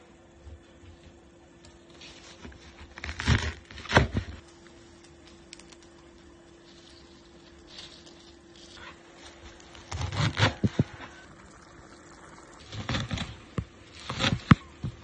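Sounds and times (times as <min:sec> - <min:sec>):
leaves rustling: 0:05.5 - 0:11.2.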